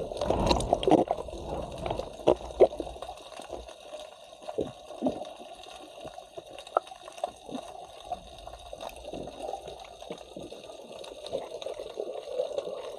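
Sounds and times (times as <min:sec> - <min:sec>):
small underwater pops and clicks: 0:06.0 - 0:07.7.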